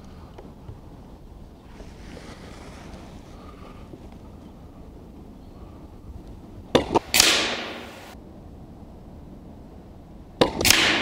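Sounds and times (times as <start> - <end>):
air rifle shots with hiss: 6.8 - 8.2, 10.4 - 11.0.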